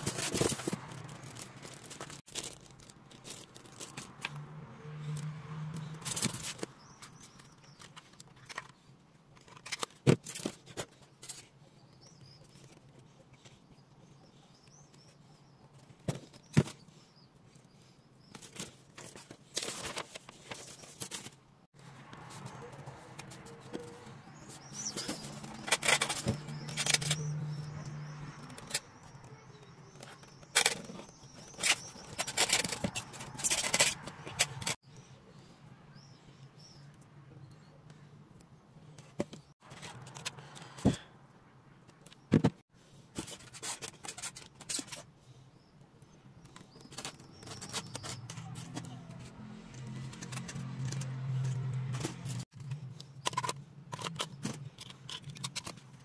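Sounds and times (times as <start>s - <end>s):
packaging rustling and clicking: 0.0s - 4.3s, 24.8s - 27.2s, 30.0s - 34.8s.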